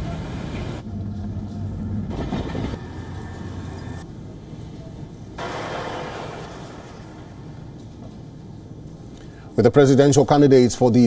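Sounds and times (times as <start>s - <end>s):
low engine rumble: 0.0s - 9.5s
heavy truck driving across field: 5.4s - 8.2s.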